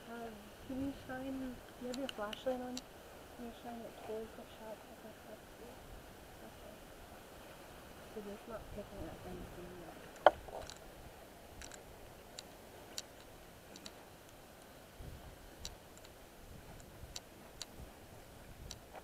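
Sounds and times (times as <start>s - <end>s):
low background hiss: 0.0s - 19.0s
faint sharp ticks: 1.6s - 2.9s, 11.6s - 14.7s, 15.6s - 17.8s, 18.6s - 19.0s.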